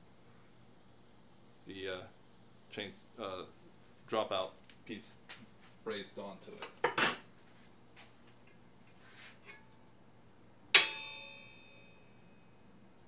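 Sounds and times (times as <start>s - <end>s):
metal clink ringing: 10.8s - 12.5s.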